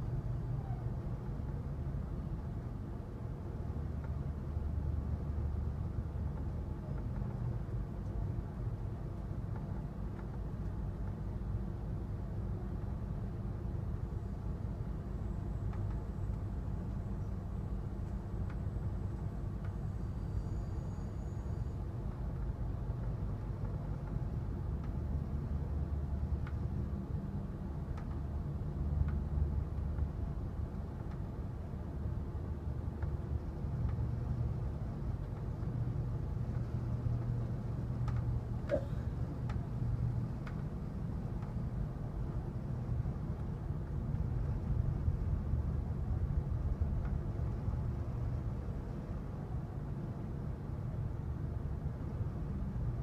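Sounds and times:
train low rumble: 0.0s - 53.0s
faint clicks: 15.7s - 16.5s.

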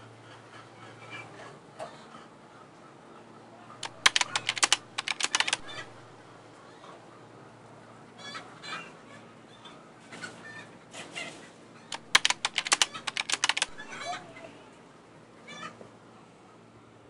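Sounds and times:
hen clucking: 5.6s - 6.0s, 13.7s - 14.4s.

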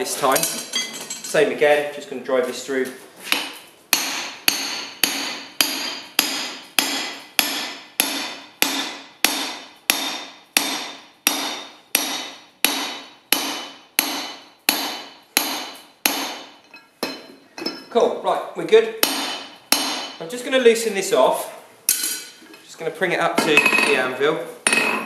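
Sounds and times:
hammer striking metal punch: 3.3s - 17.9s, 19.0s - 20.2s.

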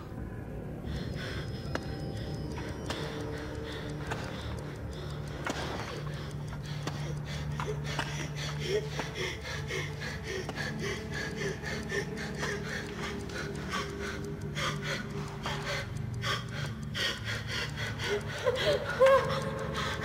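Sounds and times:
low drone with rhythmic pulses: 0.0s - 20.0s
woman whimpering: 18.1s - 20.0s.

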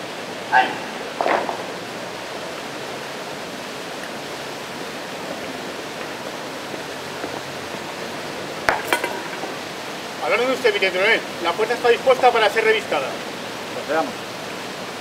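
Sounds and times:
steady background hiss: 0.0s - 15.0s
sharp knocks: 8.7s - 9.7s.

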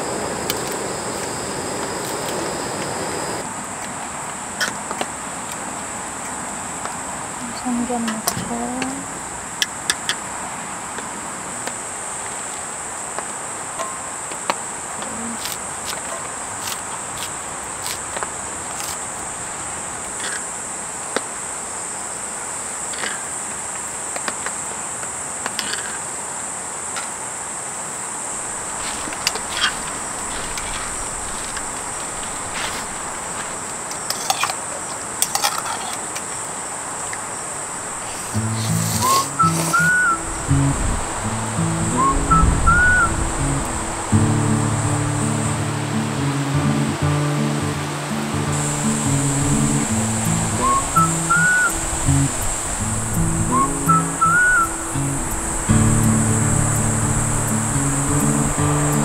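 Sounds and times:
insects trilling: 0.0s - 3.5s, 11.4s - 59.0s
low hiss: 0.0s - 3.6s, 27.8s - 33.9s, 36.8s - 59.0s.

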